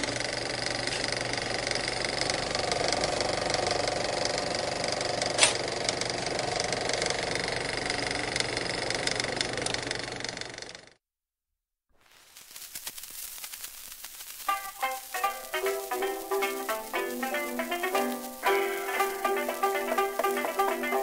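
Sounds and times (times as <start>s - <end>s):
small machine clattering: 0.0s - 11.0s
sharp click: 5.4s - 5.6s.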